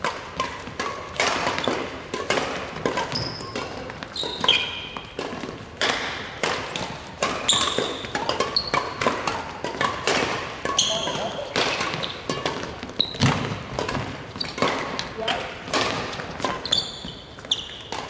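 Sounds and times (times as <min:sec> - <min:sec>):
racket hitting shuttlecock: 0:00.0 - 0:18.0
shoes squeaking on wooden floor: 0:02.9 - 0:05.6, 0:06.9 - 0:09.0, 0:10.7 - 0:15.4, 0:16.0 - 0:18.0.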